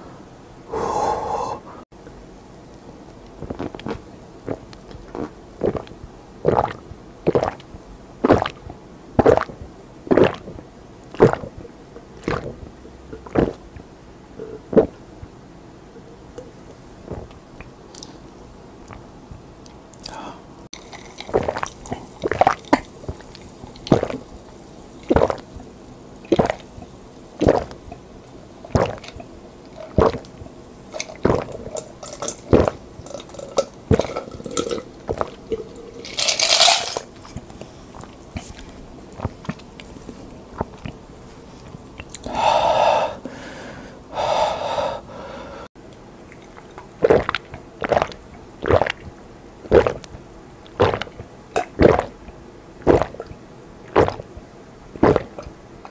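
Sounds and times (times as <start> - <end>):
breath out: 0.7 - 1.8, 20.0 - 20.5, 42.2 - 45.7
burps: 3.4 - 7.6, 8.2 - 8.6, 9.2 - 10.6, 12.2 - 13.6, 25.1 - 25.5, 26.3 - 26.7, 29.8 - 30.3, 31.0 - 36.2, 47.0 - 49.1, 49.7 - 50.1, 50.8 - 52.2, 52.8 - 53.3, 53.9 - 54.3, 55.0 - 55.5
loud gulping: 3.4 - 13.8, 14.4 - 15.0, 20.8 - 24.4, 25.0 - 25.6, 26.2 - 38.2, 46.4 - 50.1, 50.7 - 52.2, 52.8 - 53.3, 53.9 - 54.3, 55.0 - 55.5.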